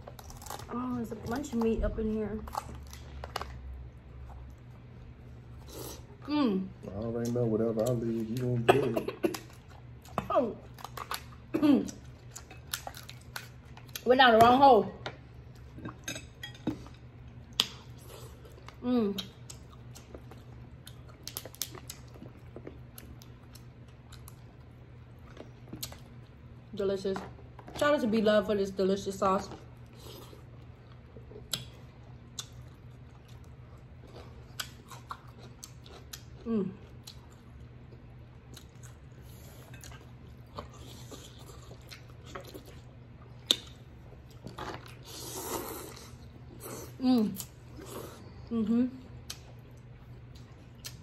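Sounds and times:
low steady hum: 0:00.0 - 0:51.0
person chewing: 0:06.8 - 0:14.0, 0:16.7 - 0:26.2, 0:29.7 - 0:48.5, 0:49.2 - 0:51.0.

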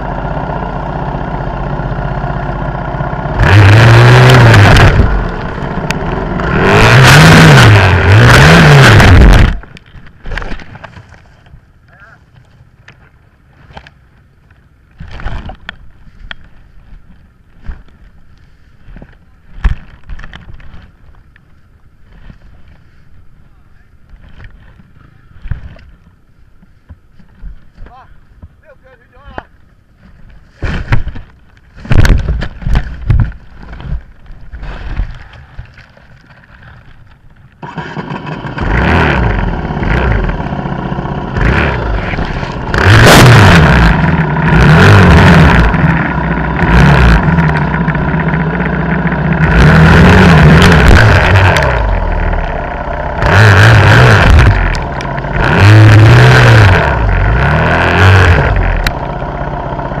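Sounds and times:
dirt bike engine revving: 0:03.2 - 0:09.7, 0:37.6 - 1:00.0
knocks and clatter: 0:30.6 - 0:37.4.

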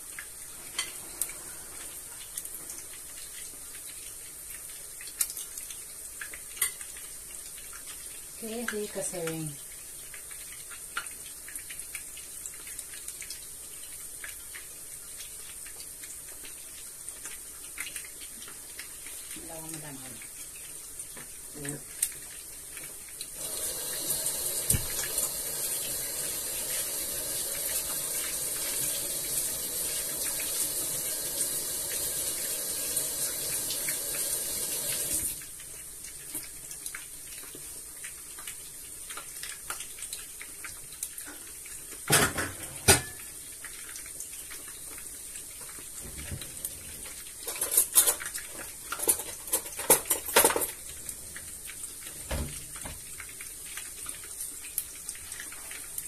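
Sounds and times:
steady hiss: 0:00.0 - 0:12.6, 0:18.6 - 0:36.4
kitchenware clattering: 0:42.1 - 0:43.2, 0:47.4 - 0:48.3, 0:48.9 - 0:50.8.

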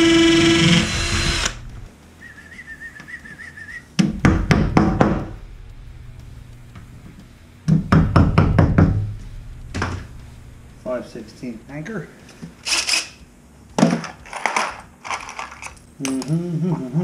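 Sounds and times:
cordless drill winding down: 0:00.0 - 0:01.7
faint whistled tune: 0:02.2 - 0:03.9.

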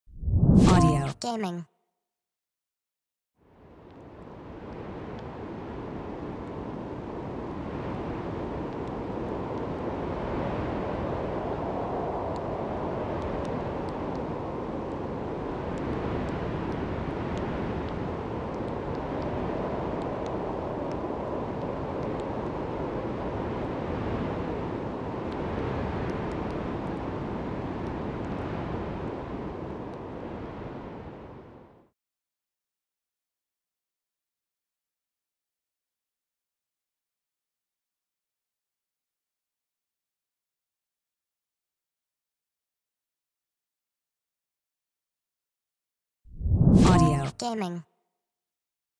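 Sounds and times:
synthesized wind and rain: 0:03.4 - 0:31.9.

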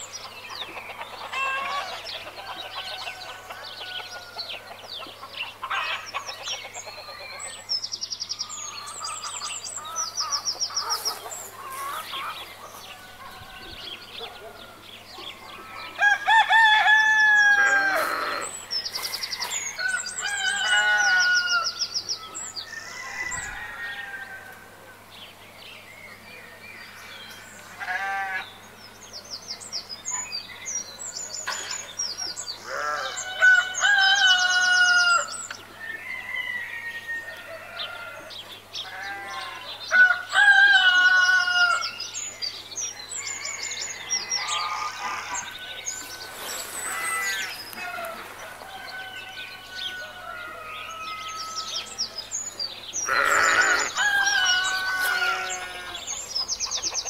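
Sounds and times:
small birds chirping: 0:00.0 - 0:16.1, 0:41.2 - 0:57.0
hens clucking: 0:00.6 - 0:07.3, 0:09.4 - 0:14.6
roosters crowing: 0:00.8 - 0:06.2, 0:08.6 - 0:24.9, 0:26.8 - 0:28.6, 0:32.4 - 0:42.2, 0:43.0 - 0:57.0.

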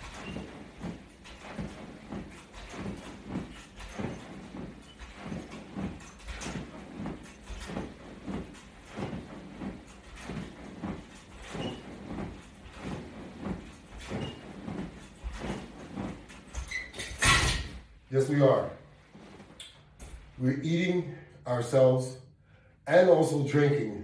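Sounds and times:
body movement: 0:00.0 - 0:20.4.

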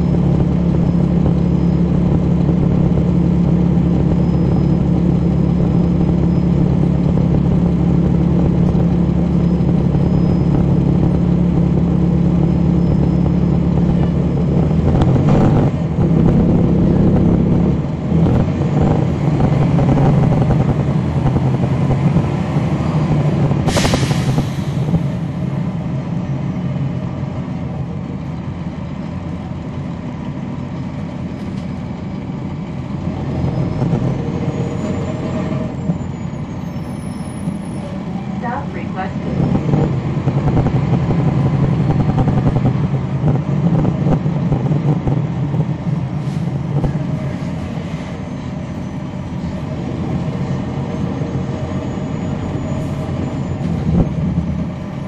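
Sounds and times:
bus diesel engine running: 0:00.0 - 0:55.0
compressed air hiss: 0:23.7 - 0:24.8.

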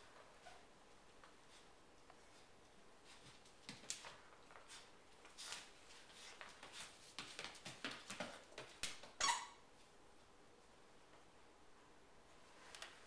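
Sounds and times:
puppy claws clicking on floor: 0:03.1 - 0:09.2.

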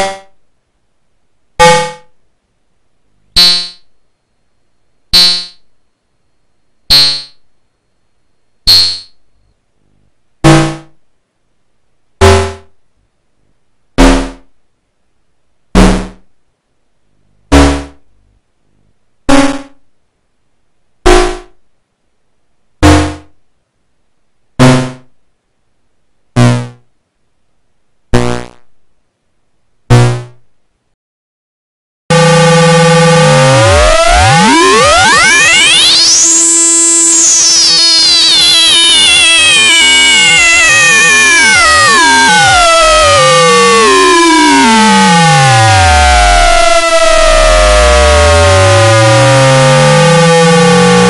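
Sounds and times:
metallic synthesizer percussion hits: 0:08.7 - 0:09.2.

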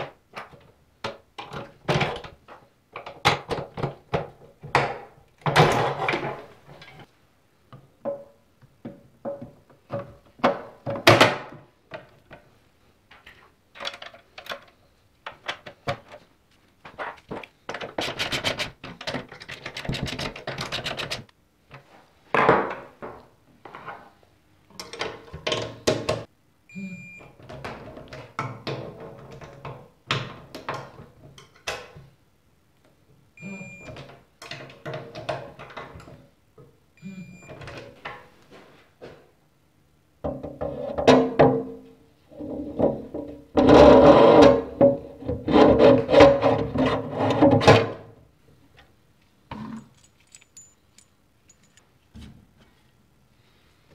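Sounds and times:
tools clanking: 0:49.6 - 0:51.9.

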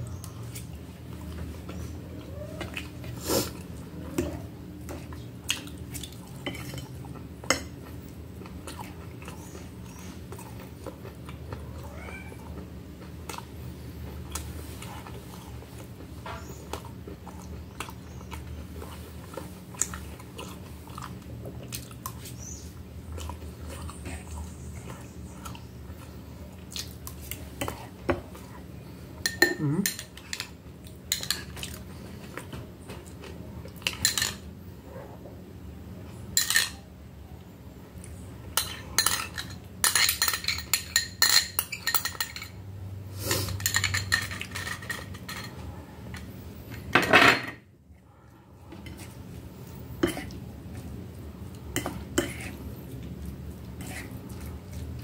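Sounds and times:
person chewing: 0:02.6 - 0:28.7, 0:48.7 - 0:55.0.

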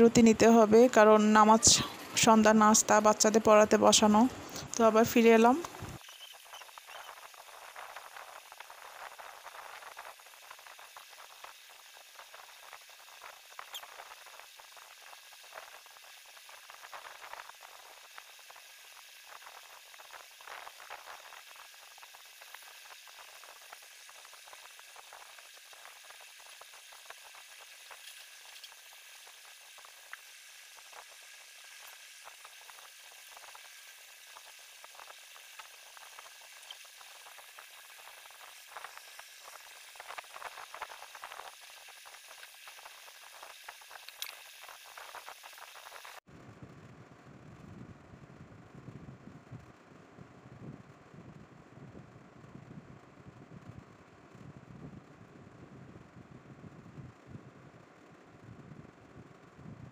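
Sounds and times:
faint steady hiss: 0:00.0 - 0:46.9.

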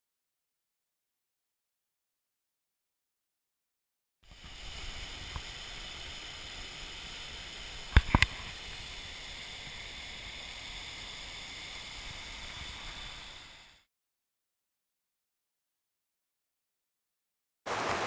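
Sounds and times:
water pouring over waterfall: 0:04.3 - 0:13.8.

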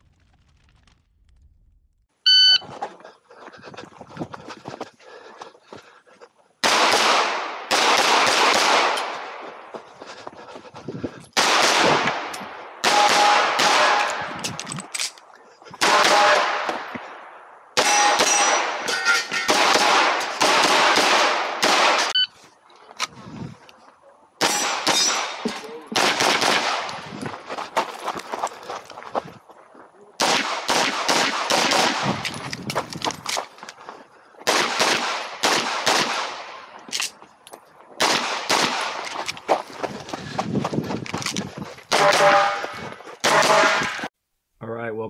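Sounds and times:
pistol gunshots with echo: 0:06.6 - 0:09.4, 0:11.4 - 0:14.3, 0:15.8 - 0:17.2, 0:17.8 - 0:18.9, 0:19.5 - 0:22.2, 0:24.4 - 0:27.0, 0:30.2 - 0:32.3, 0:34.4 - 0:36.7, 0:38.0 - 0:39.0, 0:41.9 - 0:44.1.

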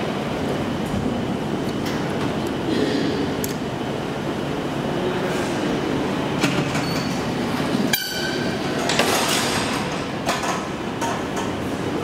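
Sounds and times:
elevator doors sliding open: 0:05.4 - 0:12.0.

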